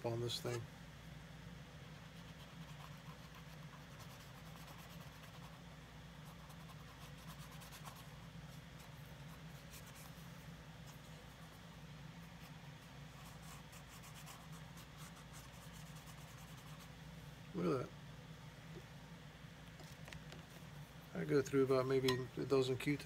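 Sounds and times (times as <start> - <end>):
steady low hum: 0.0 - 23.0
cotton swab rubbing leather: 12.3 - 17.0.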